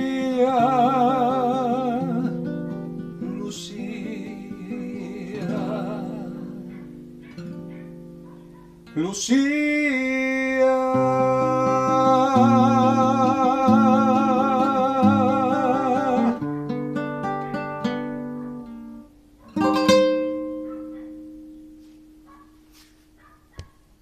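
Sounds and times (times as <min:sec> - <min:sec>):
man singing with vibrato: 0:00.0 - 0:07.0, 0:08.9 - 0:16.6
fingerpicked acoustic guitar: 0:00.0 - 0:23.2.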